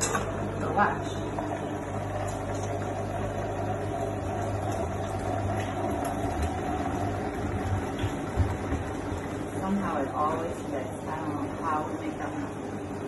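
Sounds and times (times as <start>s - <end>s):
blender motor running: 0.0s - 9.7s.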